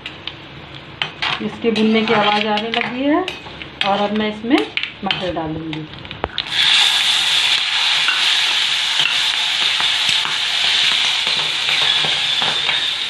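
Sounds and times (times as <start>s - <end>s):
metal ladle scraping a pan: 1.8s - 2.6s, 6.8s - 13.0s
peas sizzling in hot oil: 6.2s - 13.0s.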